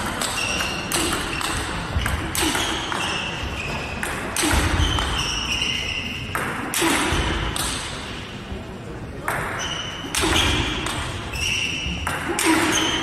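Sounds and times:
shoes squeaking on floor: 0:00.0 - 0:04.0, 0:04.6 - 0:06.3, 0:09.5 - 0:12.0.

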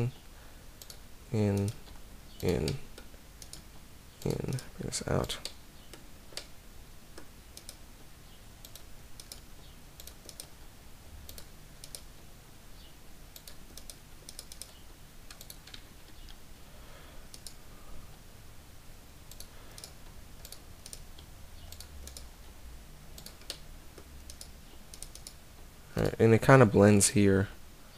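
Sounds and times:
faint low hum: 0:00.0 - 0:27.9
computer keyboard and mouse clicks: 0:00.8 - 0:04.6, 0:07.2 - 0:07.8, 0:08.6 - 0:10.6, 0:11.3 - 0:12.1, 0:13.3 - 0:16.4, 0:17.3 - 0:17.6, 0:19.3 - 0:22.3, 0:23.2 - 0:25.4.

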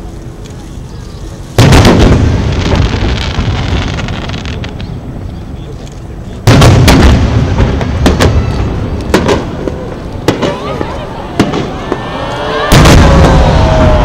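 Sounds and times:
firework booms with rumble: 0:01.6 - 0:05.2, 0:06.4 - 0:12.1, 0:12.7 - 0:14.0.

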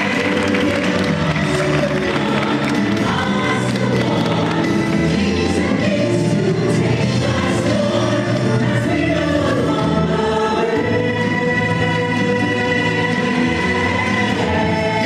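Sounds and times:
chorus of voices singing: 0:00.0 - 0:15.0.

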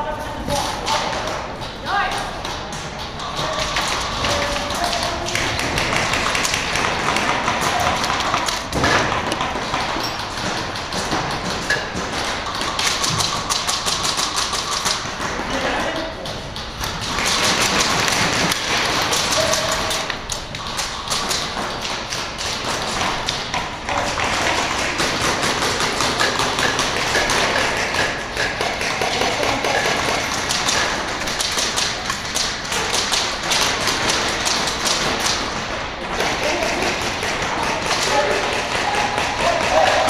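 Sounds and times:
airsoft guns firing: 0:02.0 - 0:15.8, 0:16.9 - 0:40.0.

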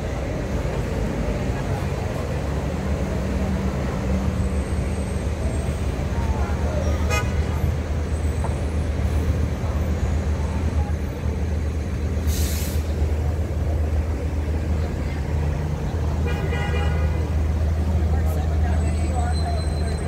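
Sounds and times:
idling vehicle engines rumbling: 0:00.0 - 0:20.0
short hiss: 0:12.2 - 0:13.0.

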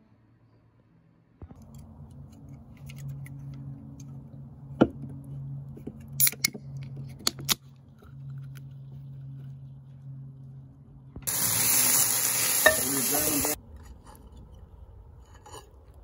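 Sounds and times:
steady low hum: 0:01.4 - 0:12.8.

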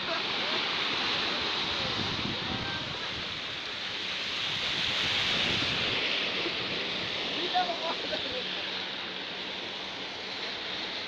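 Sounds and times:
sea waves breaking on rocks: 0:00.0 - 0:11.0
wind on microphone: 0:01.3 - 0:08.3.

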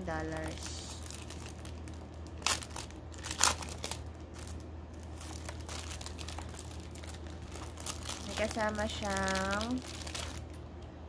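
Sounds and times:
packaging crinkling and rustling: 0:00.0 - 0:10.6
steady low hum: 0:00.0 - 0:11.0.

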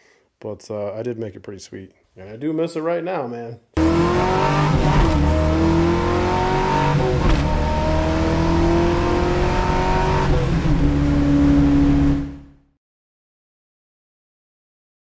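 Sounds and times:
car engine accelerating through gears: 0:03.8 - 0:12.6.

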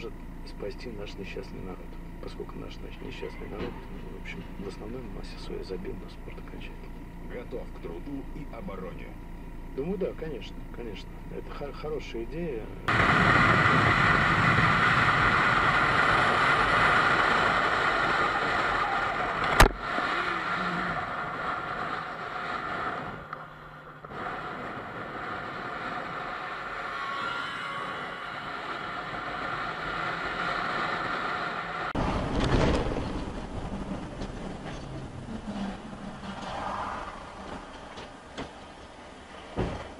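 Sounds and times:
car road and engine noise: 0:00.0 - 0:39.9
motorcycle engine: 0:00.0 - 0:39.9
wind rush: 0:12.9 - 0:23.3.

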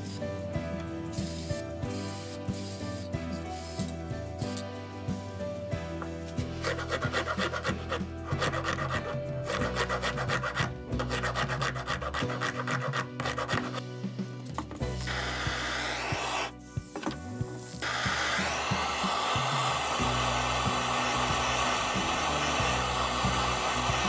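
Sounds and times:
rasp scraping wood: 0:06.5 - 0:13.8.

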